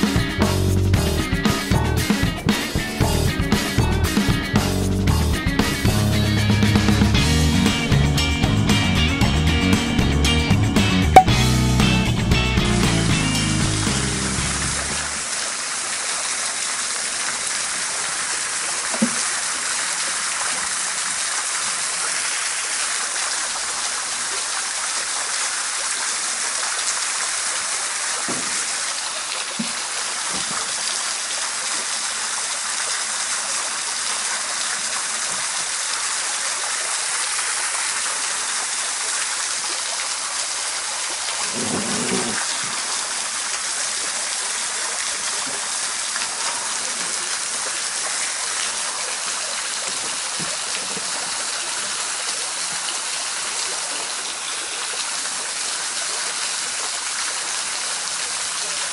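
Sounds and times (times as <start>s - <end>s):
water hissing: 37.1s - 56.0s.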